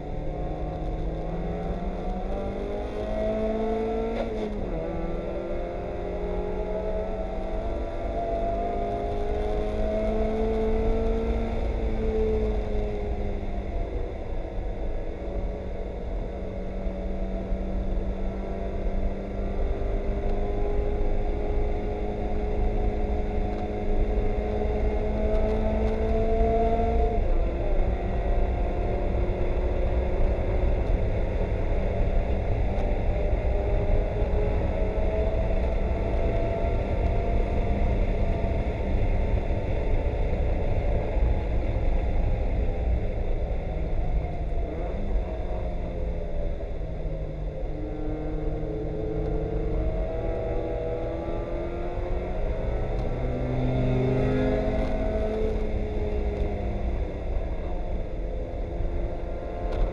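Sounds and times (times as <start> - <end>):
race car engine revving: 47.7 - 57.4.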